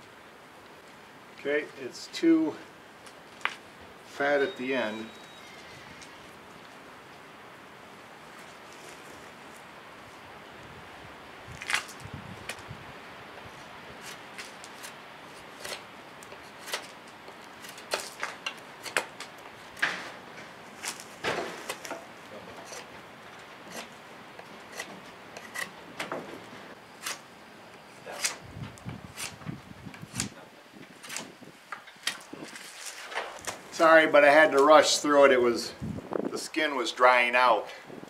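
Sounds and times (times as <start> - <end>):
knife scraping wood: 13.5 - 19.3, 20.8 - 22.9, 23.6 - 25.8, 27.0 - 27.3, 28.1 - 28.4, 29.1 - 29.4, 31.0 - 31.3.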